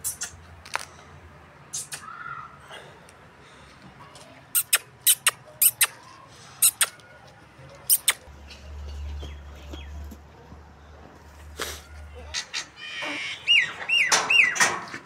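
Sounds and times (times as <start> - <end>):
calf suckling wet mouth smacks: 4.6 - 6.0.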